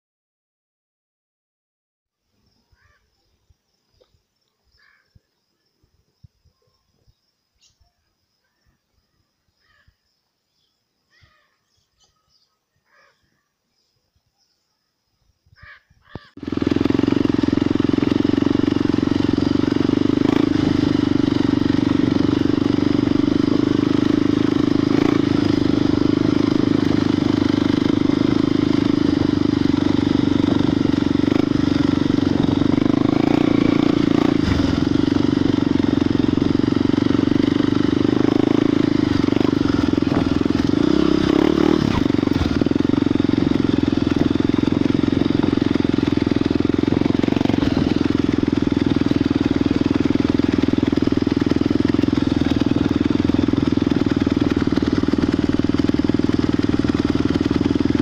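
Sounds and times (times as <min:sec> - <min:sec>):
high insect tone: 0:02.2 - 0:16.3
loud motor drone: 0:16.6 - 0:58.0.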